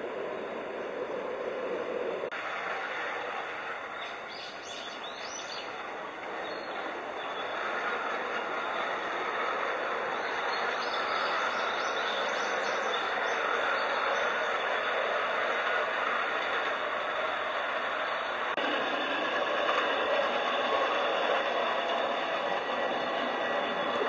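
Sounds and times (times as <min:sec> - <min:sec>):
miniature train rolling on track: 0:00.0 - 0:24.0
small birds chirping: 0:04.0 - 0:16.7.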